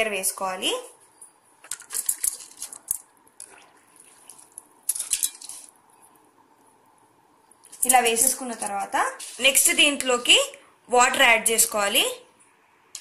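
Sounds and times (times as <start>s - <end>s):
utensil clinking against metal: 4.9s - 5.7s.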